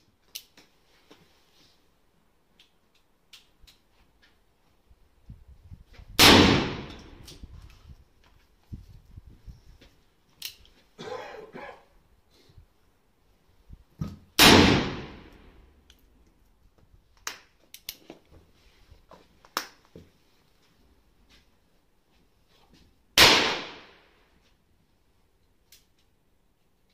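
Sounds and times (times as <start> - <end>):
revolver gunshot: 6.2 - 7.2, 14.4 - 15.4, 23.2 - 24.0.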